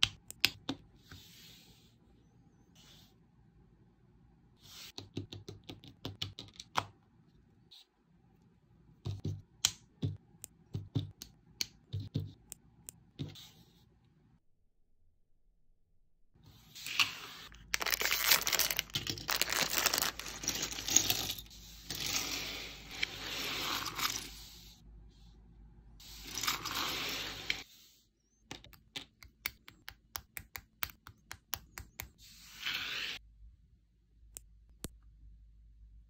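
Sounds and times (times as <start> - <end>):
plastic pouch tearing and crinkling: 17.6 - 20.4.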